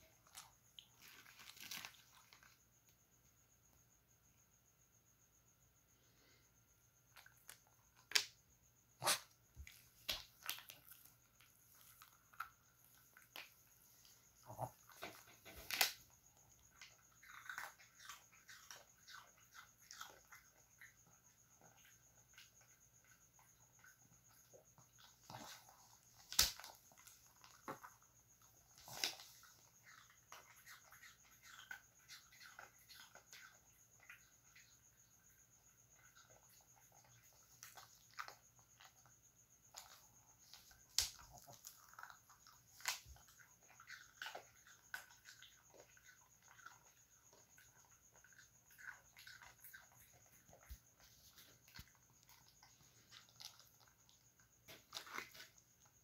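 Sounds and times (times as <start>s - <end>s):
dog crunching cookies: 0.2s - 2.6s.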